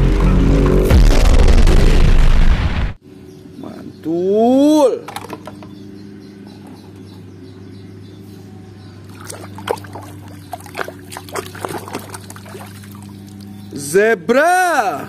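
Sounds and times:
water sloshing in plastic tub: 0:09.1 - 0:13.6.

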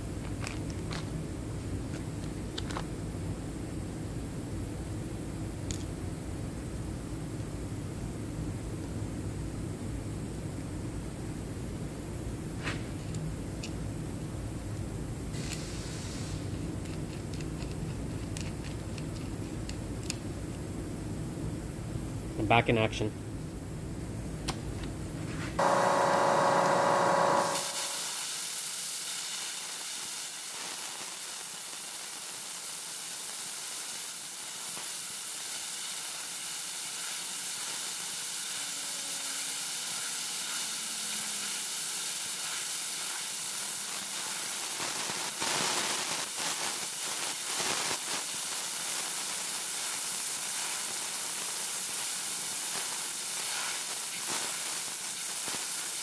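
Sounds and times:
loud buzzing tone: 0:25.6 - 0:28.1
plasma cutter hissing: 0:25.6 - 0:56.0.

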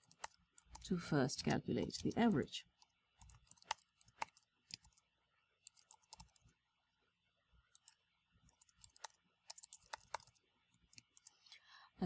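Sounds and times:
faint keyboard typing: 0:00.0 - 0:06.6, 0:07.6 - 0:11.6.

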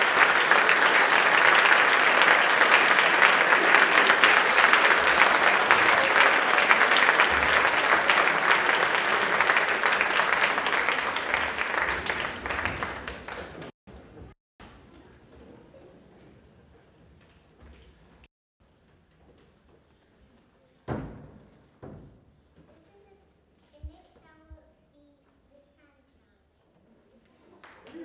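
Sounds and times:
audience applauding: 0:00.0 - 0:13.7.

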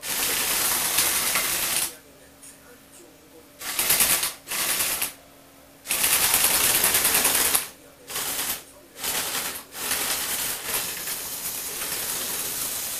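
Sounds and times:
toy motors rattling whir: 0:00.0 - 0:02.0, 0:03.6 - 0:05.2, 0:05.9 - 0:12.9.

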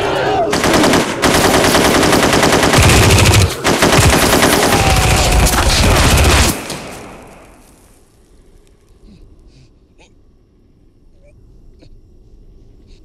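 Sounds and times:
automatic gunfire: 0:00.5 - 0:07.0.

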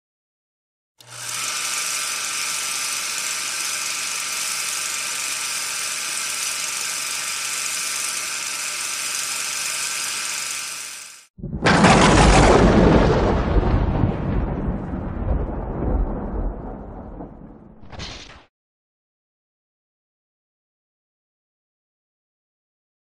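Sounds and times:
mechanical whirring hiss: 0:01.1 - 0:11.3.

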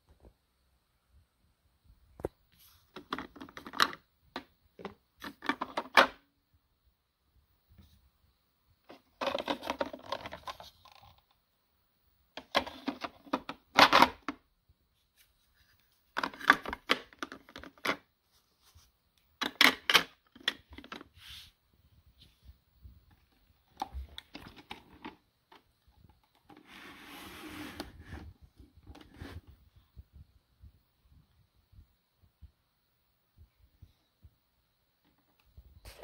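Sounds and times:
soft rustle: 0:14.9 - 0:16.2, 0:18.2 - 0:19.2, 0:21.0 - 0:30.4.

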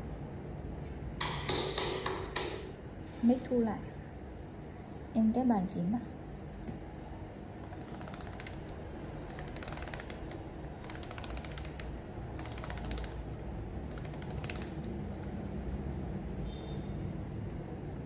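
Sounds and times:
laptop keys clicking: 0:07.6 - 0:15.5.

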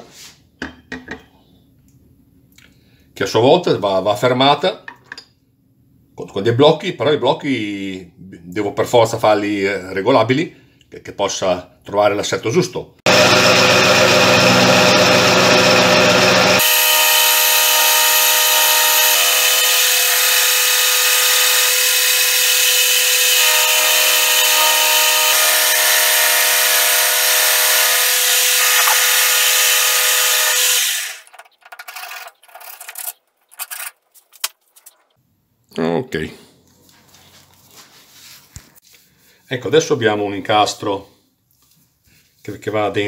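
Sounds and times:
metal lathe milling whine: 0:13.1 - 0:26.0.

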